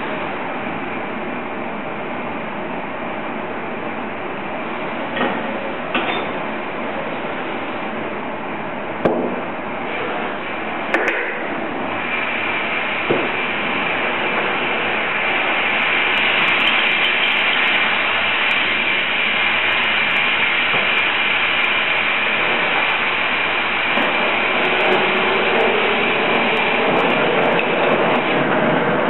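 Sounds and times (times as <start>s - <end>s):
gas burner flame hissing: 0.0s - 29.0s.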